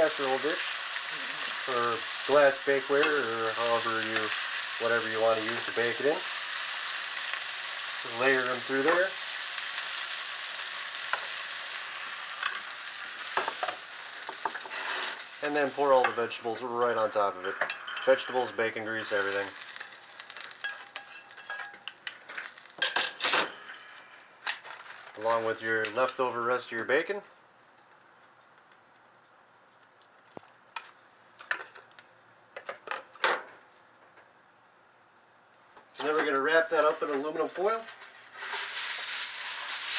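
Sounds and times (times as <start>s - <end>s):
vegetables sizzling in frying pan: 0.0s - 27.9s, 36.8s - 39.9s
kitchenware clicking and clinking: 20.6s - 23.5s.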